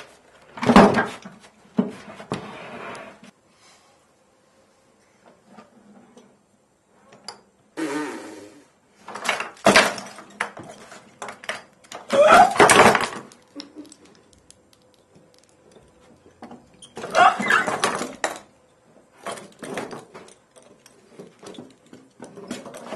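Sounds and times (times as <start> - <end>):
wooden marionette clattering: 9.1 - 22.9.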